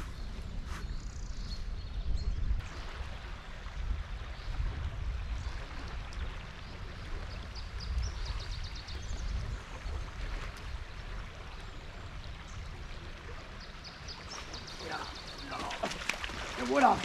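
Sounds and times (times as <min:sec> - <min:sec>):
river flowing: 0:02.6 - 0:17.0.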